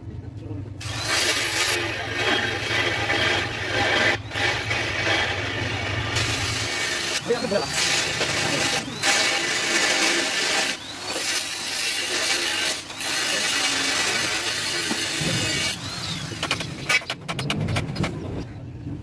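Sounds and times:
angle grinder cutting steel: 0:00.8 - 0:17.1
sharp knocks and clatters: 0:16.4 - 0:18.5.

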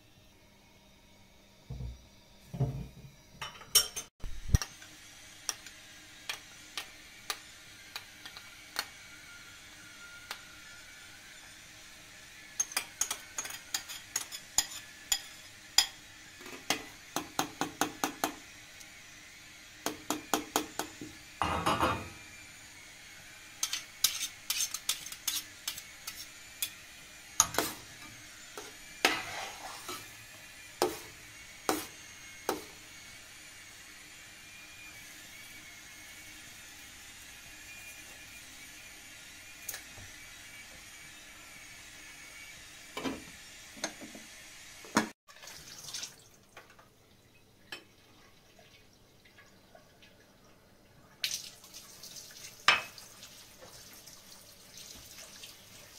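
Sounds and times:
utensils clinking against pots: 0:03.4 - 0:04.9, 0:12.6 - 0:18.4, 0:23.6 - 0:26.8, 0:27.4 - 0:30.1
utensil scraping a pot: 0:12.6 - 0:16.9, 0:23.6 - 0:26.8, 0:27.4 - 0:30.2.

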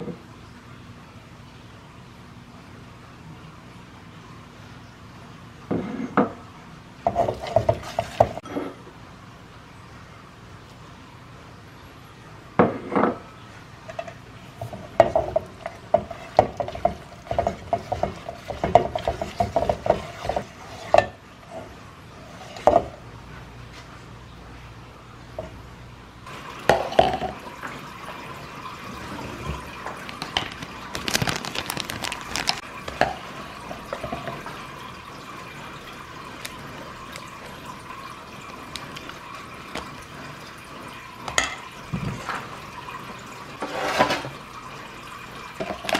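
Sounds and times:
whisk scraping metal bowl: 0:15.3 - 0:22.9.

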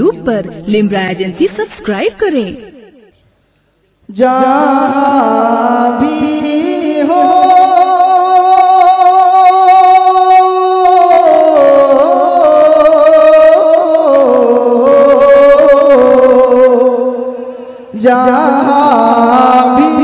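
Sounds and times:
man singing into a microphone: 0:04.1 - 0:20.0.

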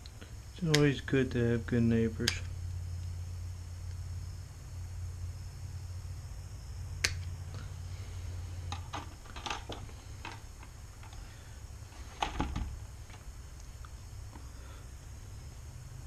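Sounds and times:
low hum: 0:00.0 - 0:16.0
plastic clicks and rattles: 0:08.7 - 0:11.2.

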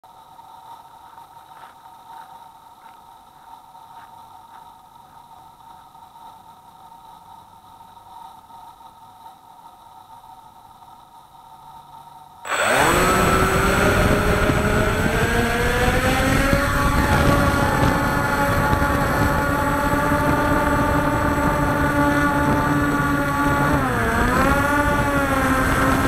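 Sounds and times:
drone motors whining: 0:12.5 - 0:26.0.

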